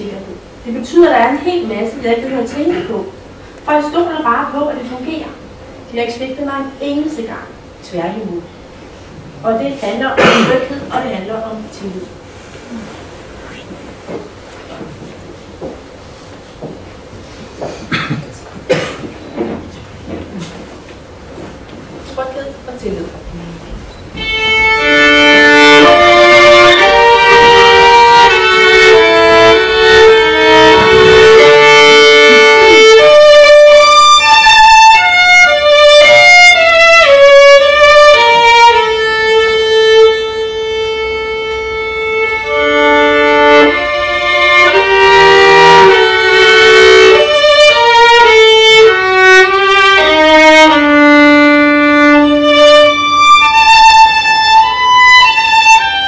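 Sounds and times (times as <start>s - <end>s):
solo violin melody: 24.2s - 56.0s.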